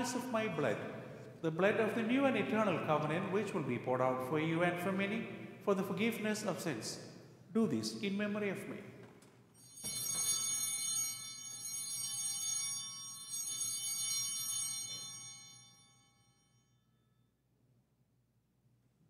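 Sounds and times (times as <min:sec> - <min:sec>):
altar bell ringing: 0:09.5 - 0:17.2.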